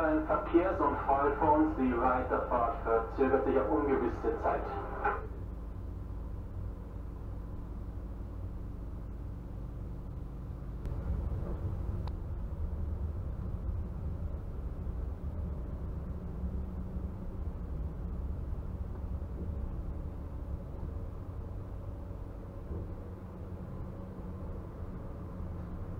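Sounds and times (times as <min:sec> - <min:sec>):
steady tones: 0:00.0 - 0:08.0
tram rumble and hum: 0:00.0 - 0:25.9.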